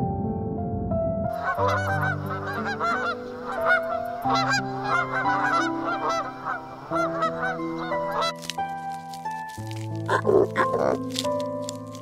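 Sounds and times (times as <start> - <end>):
geese honking: 1.4 - 8.5, 9.7 - 11.2.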